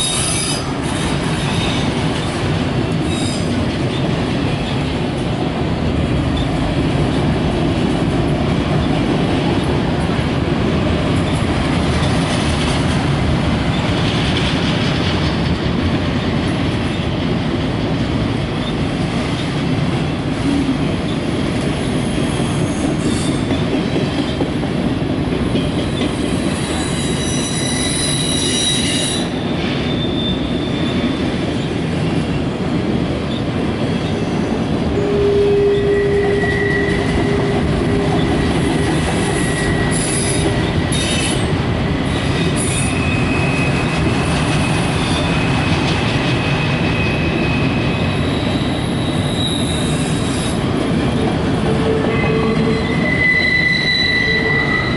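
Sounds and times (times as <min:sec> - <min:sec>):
high wheel squeal: 0:00.0 - 0:00.7, 0:26.2 - 0:31.0, 0:34.2 - 0:38.3, 0:39.2 - 0:41.5, 0:42.5 - 0:44.0, 0:44.6 - 0:50.6, 0:51.8 - 0:54.9
freight train wheels rumbling: 0:00.0 - 0:54.9.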